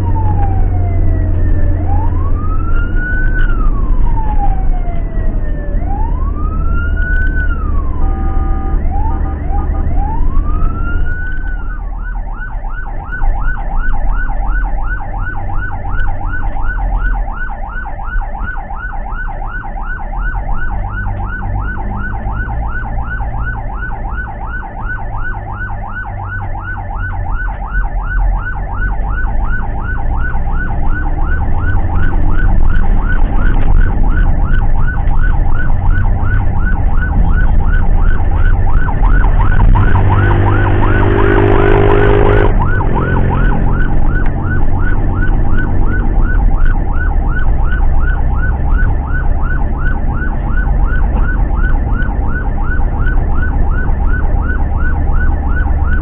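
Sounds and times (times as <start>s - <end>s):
ambulance siren yelping: 0.0s - 56.0s
engine and road rumble: 0.0s - 56.0s
low horn blast: 39.6s - 43.6s.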